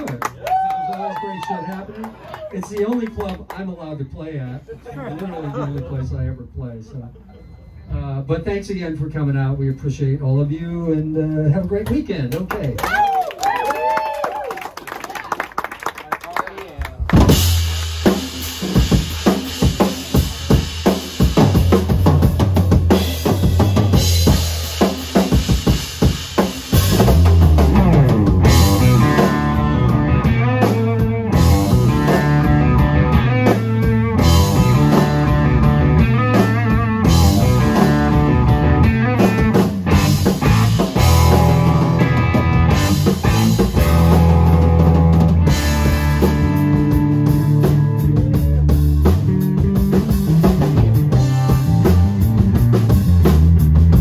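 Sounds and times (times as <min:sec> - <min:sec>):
drum kit: 0:16.8 - 0:54.0
rock band playing: 0:16.9 - 0:54.0.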